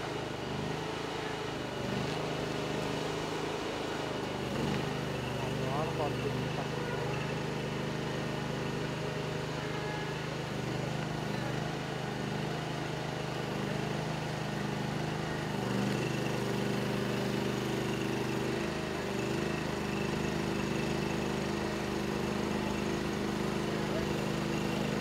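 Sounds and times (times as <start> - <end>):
engine running: 0.0 - 25.0.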